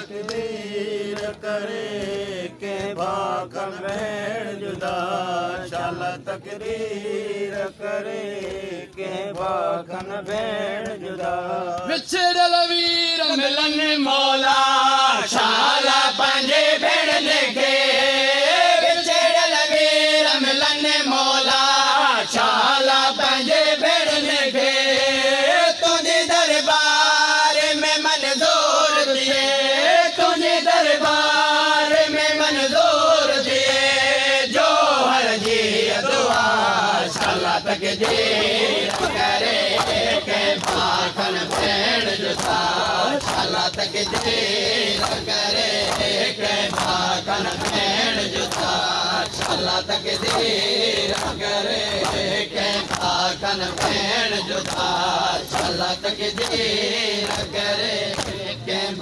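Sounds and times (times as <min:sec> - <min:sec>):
crowd noise: 0:00.0 - 0:59.0
men chanting in unison: 0:00.0 - 0:59.0
hands slapping chests: 0:00.1 - 0:12.1, 0:35.4 - 0:58.4.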